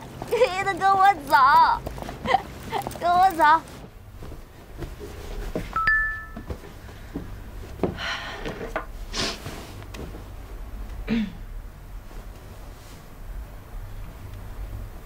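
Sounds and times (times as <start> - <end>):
clothing rustling: 0.0 - 10.9, 11.8 - 13.6
phone notification chime: 5.8 - 6.5.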